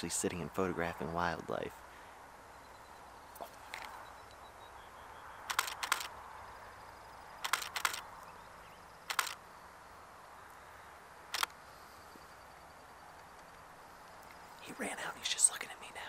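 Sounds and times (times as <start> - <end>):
camera shutter firing: 5.5 - 6.2, 7.4 - 8.1, 9.0 - 9.4, 11.3 - 11.6.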